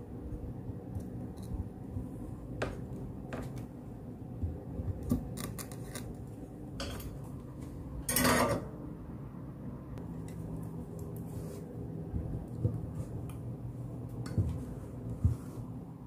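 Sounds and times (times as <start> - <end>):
low steady hum: 0.0 - 16.0
rustling scrape: 11.2 - 11.8.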